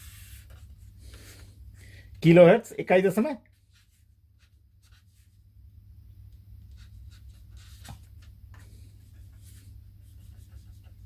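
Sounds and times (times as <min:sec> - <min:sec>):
marker pen scratching on paper: 0:06.7 - 0:08.3, 0:09.0 - 0:11.0.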